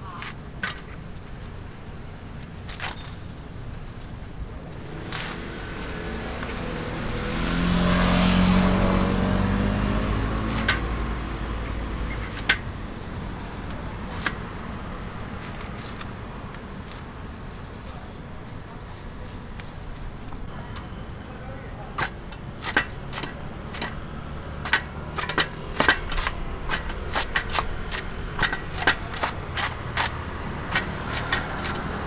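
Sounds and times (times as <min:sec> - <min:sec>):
vehicle engine passing by: 0:04.8 - 0:14.1, 0:23.3 - 0:32.0
coconut husk tearing snaps: 0:05.0 - 0:06.0, 0:24.7 - 0:32.0.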